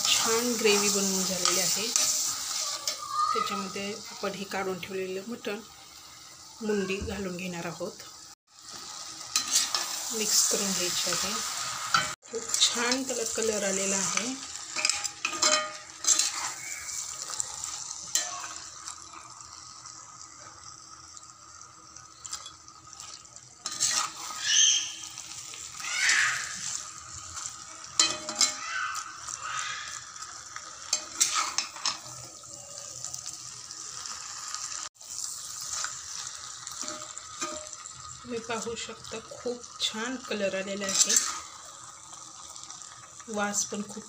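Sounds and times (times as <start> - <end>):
spatula scraping a pan: 0.0 - 3.1, 8.7 - 18.7, 22.2 - 29.1, 30.8 - 32.2, 35.6 - 37.8, 40.8 - 41.7
food sizzling: 0.0 - 44.0.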